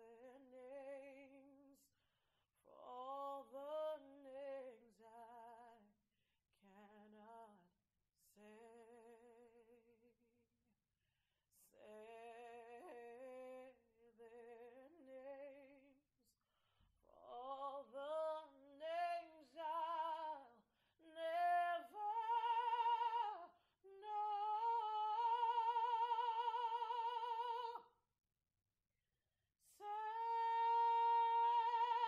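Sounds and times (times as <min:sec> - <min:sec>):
woman singing solo: 0:29.7 - 0:32.0.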